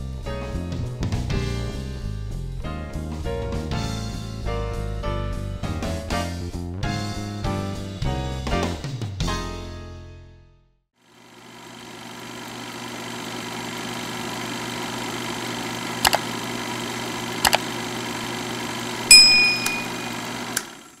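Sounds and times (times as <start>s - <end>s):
mouse button clicks: 16.0s - 16.2s, 17.4s - 17.6s
bright bell ding: 19.1s - 20.3s.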